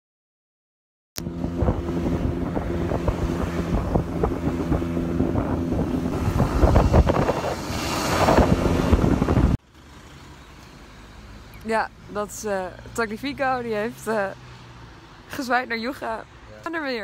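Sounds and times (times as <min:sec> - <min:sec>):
scooter engine running: 0:01.2 - 0:09.6
wind buffeting microphone: 0:01.2 - 0:09.6
outdoor background noise: 0:01.2 - 0:17.0.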